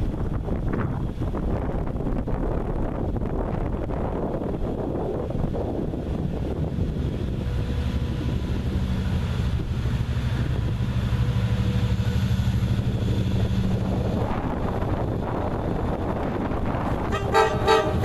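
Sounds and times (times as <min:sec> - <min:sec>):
locomotive diesel engine drone: 0:00.0 - 0:18.0.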